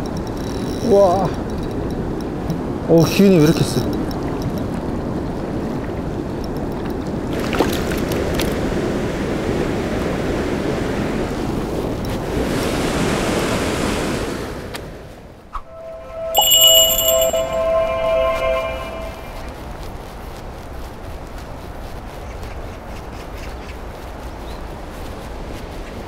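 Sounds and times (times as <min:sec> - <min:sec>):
music jingle with ringing tones: 0:15.7 - 0:19.6.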